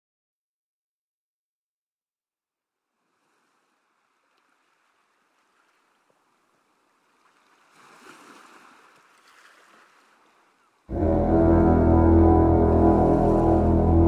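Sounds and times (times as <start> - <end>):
waves rushing: 7.0 - 10.4, 12.6 - 14.0.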